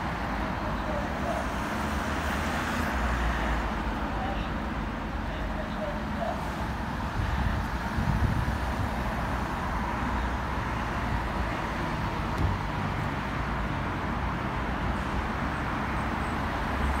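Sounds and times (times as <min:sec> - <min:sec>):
road traffic noise: 0:00.0 - 0:17.0.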